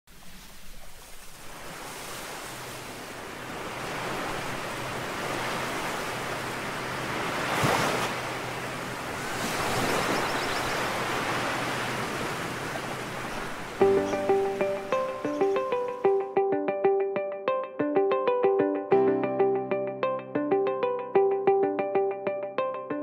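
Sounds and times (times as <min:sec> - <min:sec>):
ocean waves breaking on beach: 0:00.1 - 0:16.2.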